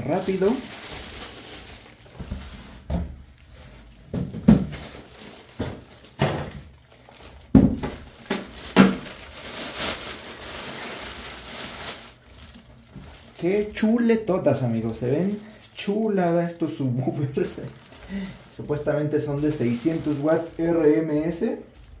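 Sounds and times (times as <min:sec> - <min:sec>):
plastic bag crinkling: 0:00.0 - 0:22.0
cardboard box thumps and knocks: 0:04.1 - 0:04.8.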